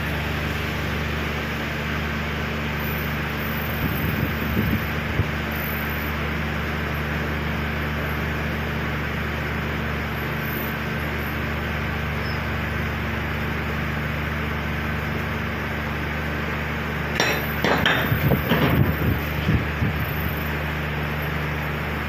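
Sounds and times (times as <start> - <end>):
low mechanical hum: 0.0 - 22.0
irregular knocks and clinks: 17.2 - 19.2.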